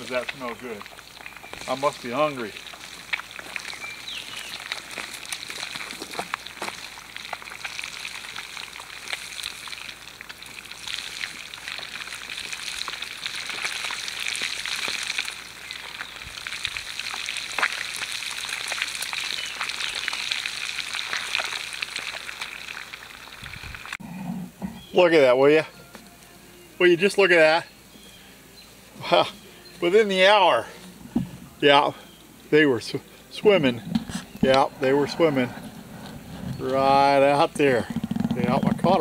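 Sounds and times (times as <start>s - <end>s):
fish frying in hot oil: 0.0s - 24.0s.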